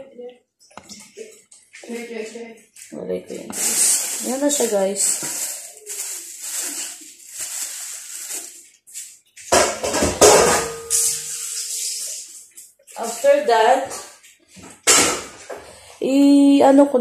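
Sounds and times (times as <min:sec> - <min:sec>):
rustling and scraping: 0:00.7 - 0:15.6
kitchen clatter: 0:03.5 - 0:15.8.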